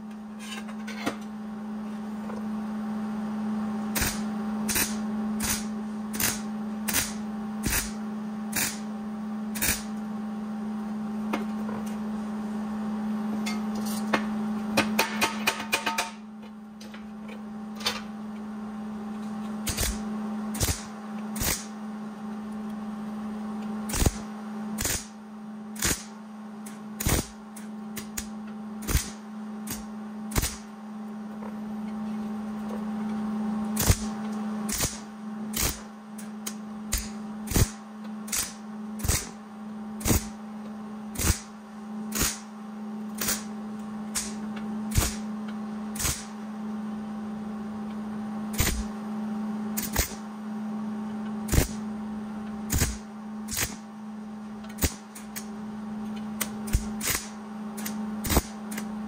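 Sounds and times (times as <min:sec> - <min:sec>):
steady low hum: 0:00.0 - 0:59.0
welder crackling bursts: 0:04.0 - 0:08.9, 0:09.6 - 0:09.9, 0:19.6 - 0:21.8, 0:23.9 - 0:25.2, 0:25.8 - 0:26.2, 0:27.0 - 0:27.4, 0:28.0 - 0:30.7, 0:33.8 - 0:34.1, 0:34.7 - 0:35.9, 0:36.9 - 0:39.4, 0:40.0 - 0:40.4, 0:41.2 - 0:41.5, 0:42.1 - 0:42.5, 0:43.2 - 0:43.5, 0:44.2 - 0:45.3, 0:46.0 - 0:46.4, 0:48.5 - 0:48.9, 0:49.8 - 0:50.2, 0:51.5 - 0:51.8, 0:52.7 - 0:53.9, 0:54.8 - 0:55.5, 0:56.4 - 0:58.6.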